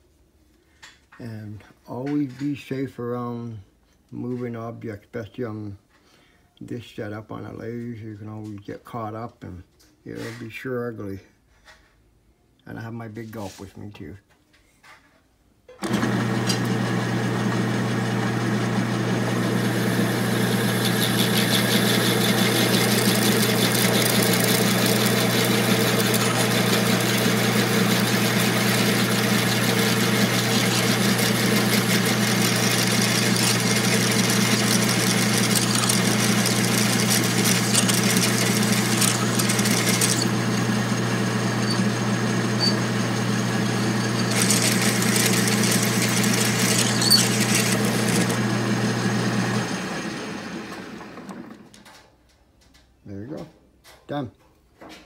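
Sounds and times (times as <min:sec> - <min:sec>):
metal lathe humming: 0:15.8 - 0:51.5
drill cutting hiss: 0:19.5 - 0:48.6.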